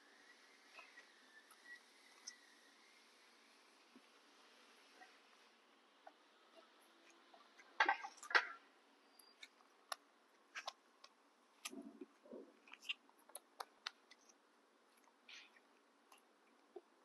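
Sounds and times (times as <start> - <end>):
chewing clicks and soft thuds: 9.2 - 17.0.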